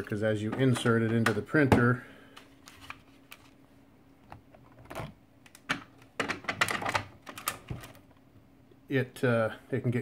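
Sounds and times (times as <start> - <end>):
faint steady hum: 0.0 - 10.0
plastic cassette clicks and clacks: 4.9 - 8.0.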